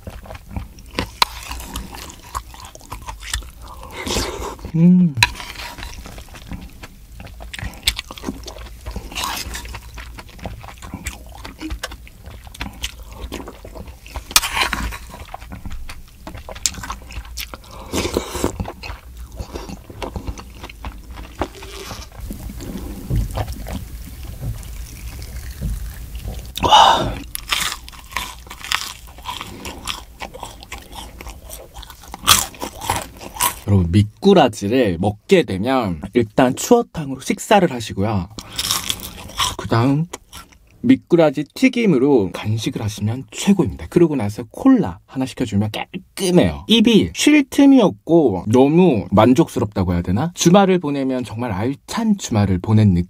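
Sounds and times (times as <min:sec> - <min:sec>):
chewing: 0:00.0 - 0:33.7, 0:38.3 - 0:40.8
crunchy bites: 0:00.0 - 0:33.7, 0:38.3 - 0:40.6
mouth sounds: 0:03.8 - 0:05.3, 0:26.5 - 0:27.3.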